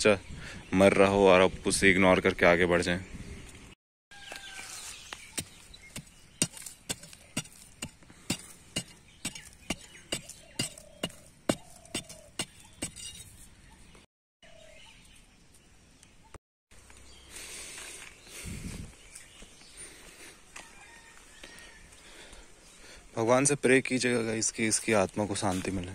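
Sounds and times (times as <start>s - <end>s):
stick striking dry soil: 4.2s - 13.5s.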